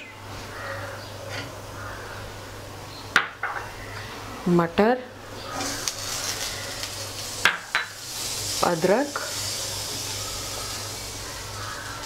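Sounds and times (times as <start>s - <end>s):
food sizzling in oil: 5.4s - 12.0s.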